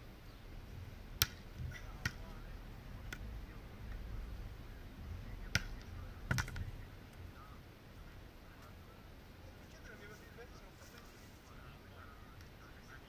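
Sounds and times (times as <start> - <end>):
wind rumble: 0.0 - 9.5.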